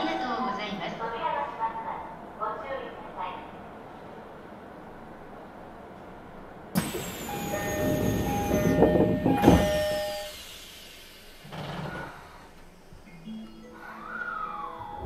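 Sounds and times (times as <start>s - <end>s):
train running hum: 0.7s - 13.0s
electric train passing: 4.1s - 11.5s.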